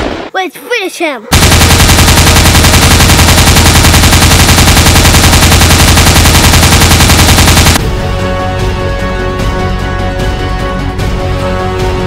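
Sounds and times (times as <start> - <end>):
rapid machine-gun fire: 1.3 - 7.8.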